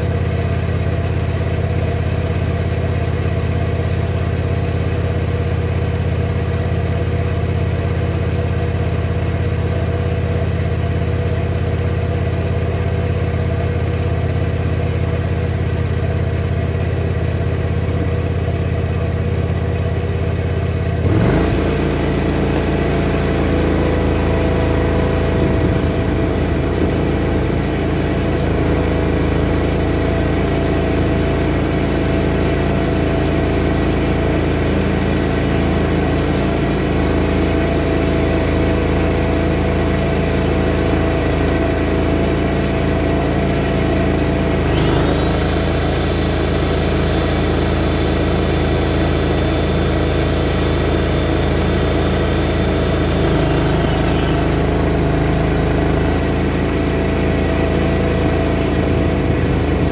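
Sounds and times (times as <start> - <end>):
mower engine running: 0.0 - 59.9
high steady whine: 44.4 - 59.9.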